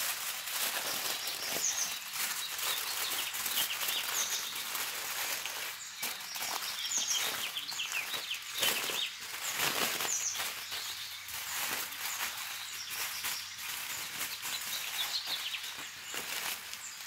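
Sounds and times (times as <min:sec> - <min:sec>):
aluminium foil crinkling: 0:00.0 - 0:17.0
small birds chirping: 0:00.0 - 0:17.0.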